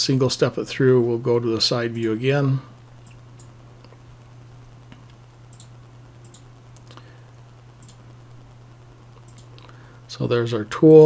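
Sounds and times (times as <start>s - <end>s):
low electrical hum: 0.0s - 11.0s
computer mouse clicks: 5.0s - 7.0s, 7.8s - 8.0s, 9.2s - 9.7s.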